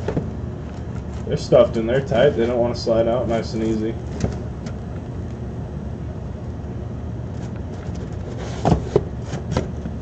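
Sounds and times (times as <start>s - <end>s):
low background rumble: 0.0s - 10.0s
cardboard boxes sliding out: 7.8s - 9.6s.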